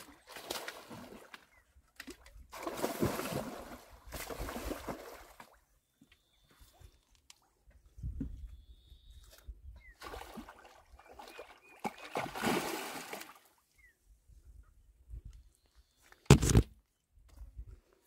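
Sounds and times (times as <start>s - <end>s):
fish splashing at water surface: 11.2s - 13.3s.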